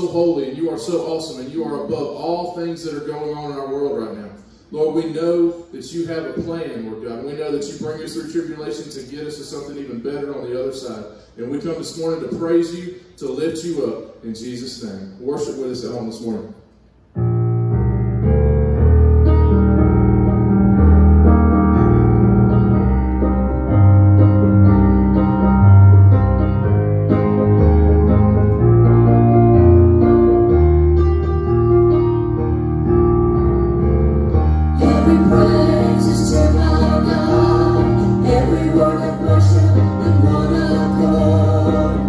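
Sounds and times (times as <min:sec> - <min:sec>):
keyboard chords: 0:17.1 - 0:42.0
heavy bass line: 0:17.2 - 0:42.0.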